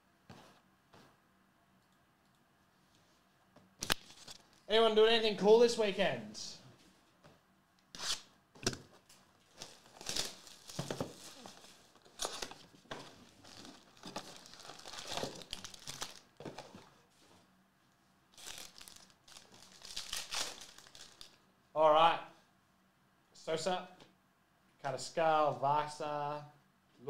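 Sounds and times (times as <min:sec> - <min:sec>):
wrapping being torn: 0:09.5 - 0:16.4, 0:18.3 - 0:21.4
foil packs crinkling: 0:09.5 - 0:16.8, 0:18.3 - 0:21.4.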